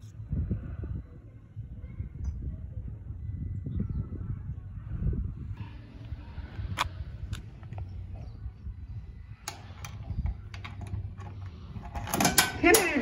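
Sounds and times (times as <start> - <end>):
steady low rumble: 0.0 - 12.9.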